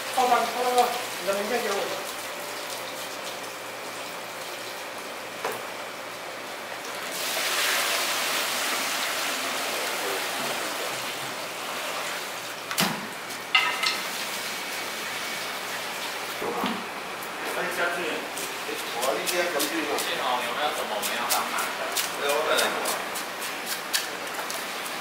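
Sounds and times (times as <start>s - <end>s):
water running: 0.0s - 5.6s, 6.7s - 12.7s.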